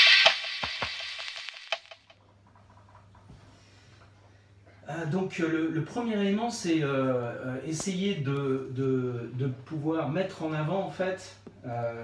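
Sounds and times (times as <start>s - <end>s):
sharp clicking percussive hits: 0.0s - 2.2s.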